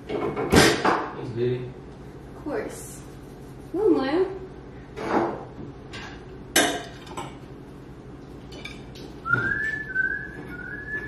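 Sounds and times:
tableware clinking: 5.0s - 7.4s, 8.4s - 9.1s
person whistling: 9.2s - 11.0s.

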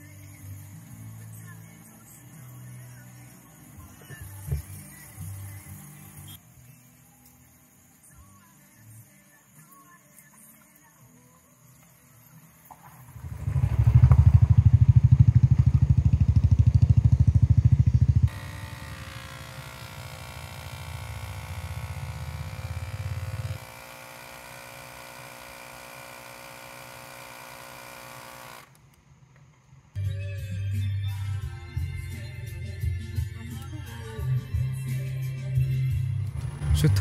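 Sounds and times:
tyre inflator compressor pulsing: 13.1s - 29.0s
tyre inflator whine: 17.9s - 29.0s.

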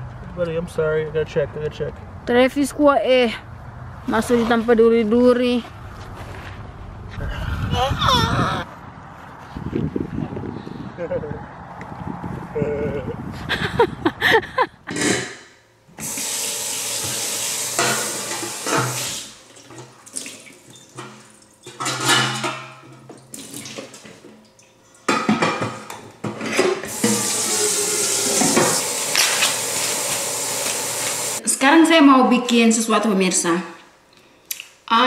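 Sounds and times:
tap running into sink: 16.0s - 21.8s, 26.9s - 31.4s
pots and dishes clattering: 17.8s - 19.0s, 19.6s - 24.4s, 25.0s - 27.4s.

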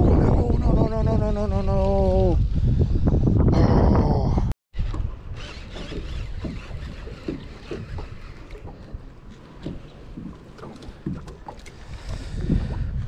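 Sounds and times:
wind buffeting microphone: 0.0s - 13.0s
water lapping against boat: 4.8s - 13.0s.

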